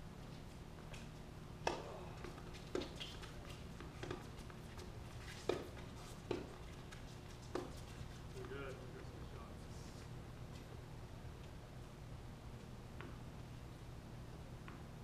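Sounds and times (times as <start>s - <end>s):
tennis ball hit and bouncing: 1.6s - 4.3s, 5.4s - 6.6s, 7.5s - 7.8s.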